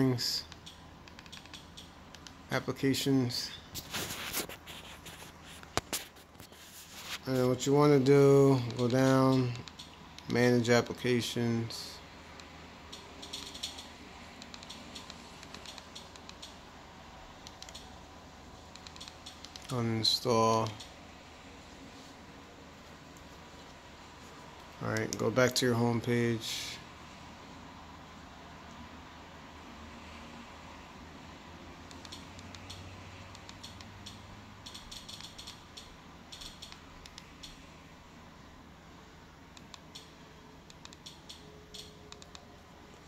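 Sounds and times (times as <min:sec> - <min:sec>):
faint low room hum: 0:00.0 - 0:43.0
remote buttons clicking: 0:00.5 - 0:02.4, 0:08.5 - 0:10.4, 0:12.3 - 0:16.6, 0:17.4 - 0:17.9, 0:18.7 - 0:19.9, 0:31.9 - 0:37.6, 0:39.5 - 0:42.5.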